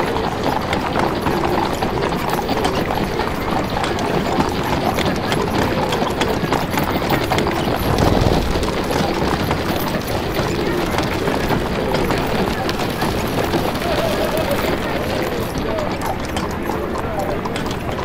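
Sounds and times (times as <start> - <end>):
horses' hooves clip-clopping: 0.0 - 18.0
steady street din: 0.0 - 18.0
low rumble: 7.8 - 9.7.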